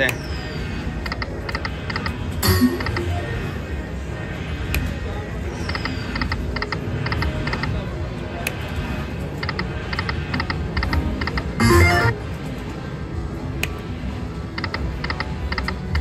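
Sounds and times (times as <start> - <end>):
low casino floor rumble: 0.3 - 16.0
slot machine electronic ticks: 1.9 - 3.3, 9.4 - 12.2.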